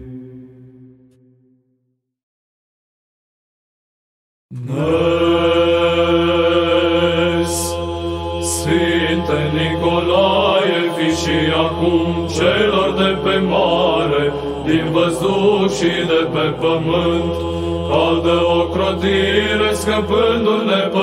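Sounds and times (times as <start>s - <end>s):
low sung drone: 4.5s - 20.8s.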